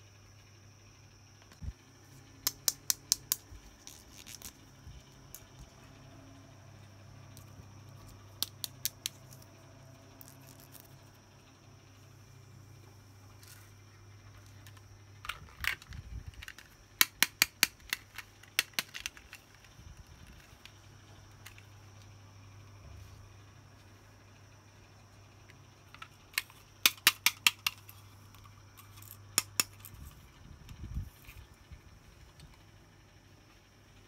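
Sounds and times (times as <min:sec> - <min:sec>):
low steady hum: 0:00.0 - 0:34.0
plastic toy pieces clicking: 0:14.7 - 0:19.7, 0:25.9 - 0:27.9.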